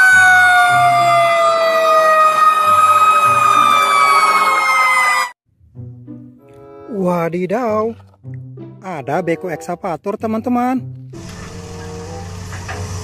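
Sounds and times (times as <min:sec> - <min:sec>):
siren wailing: 0:00.0 - 0:05.4.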